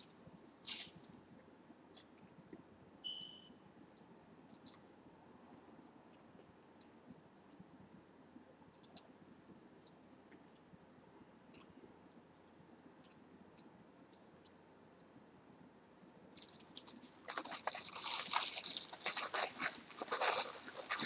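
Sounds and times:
faint chewing mouth clicks: 1.9 - 2.4, 4.0 - 4.9, 8.7 - 15.1.

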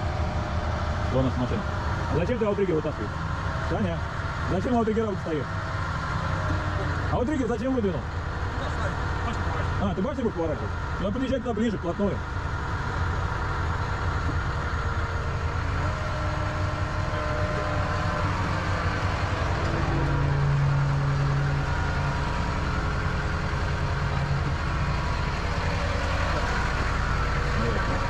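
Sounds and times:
faint whining tones: 0.0 - 28.0
truck engine running: 0.0 - 28.0.

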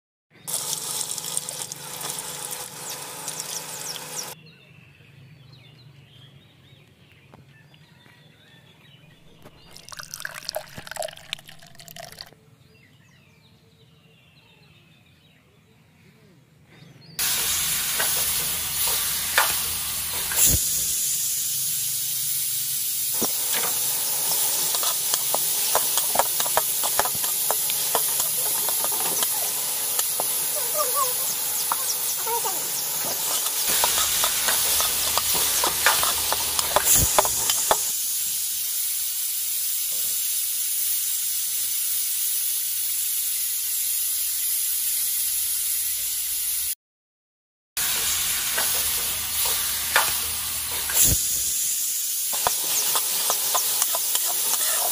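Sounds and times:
vegetables sizzling in hot oil: 0.5 - 4.4, 17.2 - 46.8, 47.8 - 54.9
wooden spatula stirring: 24.5 - 30.4, 33.0 - 37.8.

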